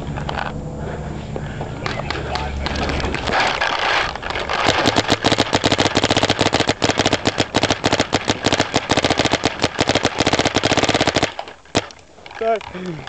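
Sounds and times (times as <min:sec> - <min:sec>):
paintball marker firing rapidly: 0:02.1 - 0:12.0.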